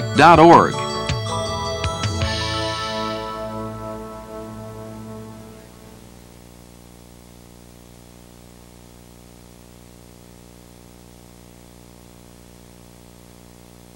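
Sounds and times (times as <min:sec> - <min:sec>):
electrical hum with hiss: 0:02.7 - 0:13.9.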